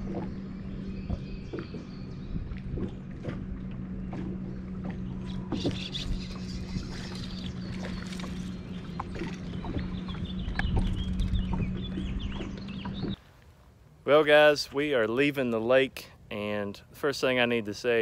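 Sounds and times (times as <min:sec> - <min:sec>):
electric trolling motor humming: 0:00.0 - 0:13.2
birds chirping: 0:00.0 - 0:13.4.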